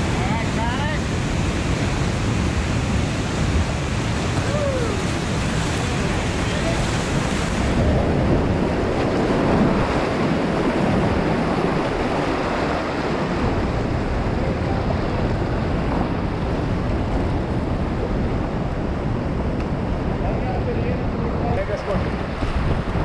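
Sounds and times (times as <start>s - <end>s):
whitewater rushing: 0.0s - 23.0s
wind buffeting microphone: 0.0s - 23.0s.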